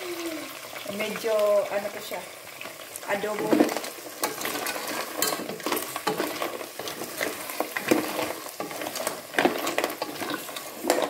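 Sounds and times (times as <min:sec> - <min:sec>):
sauce sizzling: 0:00.0 - 0:11.0
shells clicking and scraping in pot: 0:03.5 - 0:11.0.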